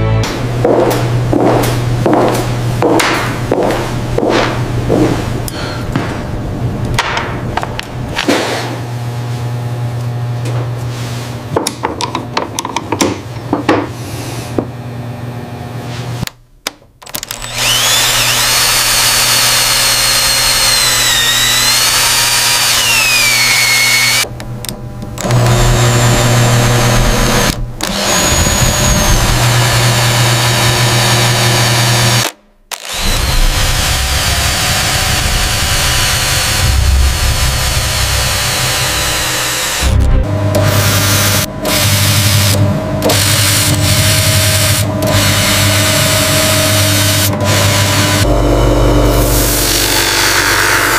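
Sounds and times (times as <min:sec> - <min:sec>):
steady hum: 0:00.0 - 0:16.6, 0:22.9 - 0:30.8, 0:33.0 - 0:50.9
power drill boring: 0:17.1 - 0:24.3, 0:25.2 - 0:50.9.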